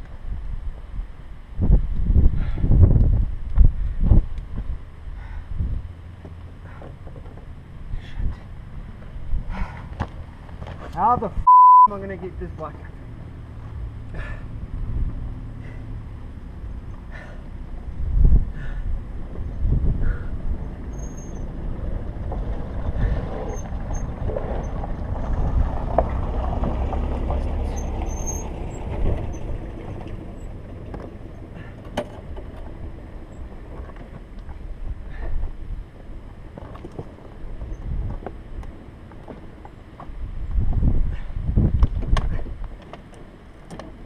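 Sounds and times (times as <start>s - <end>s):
wind buffeting microphone: 0.0s - 6.0s, 14.2s - 39.2s, 40.1s - 42.8s
knocks and scrapes on gravel: 9.9s - 11.2s.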